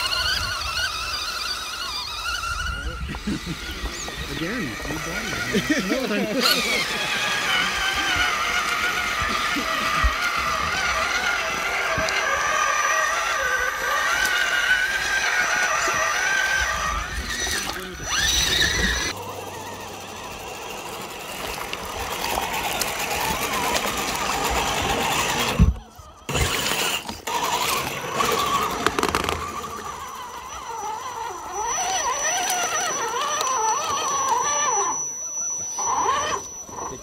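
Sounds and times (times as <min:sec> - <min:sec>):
rc truck motors whining: 0:00.0 - 0:37.0.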